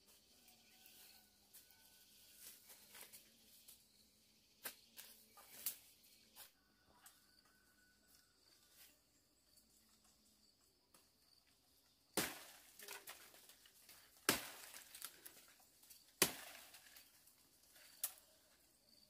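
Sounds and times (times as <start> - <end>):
leaves rustling: 2.1 - 3.8, 12.2 - 18.6
branches snapping: 12.2 - 18.3.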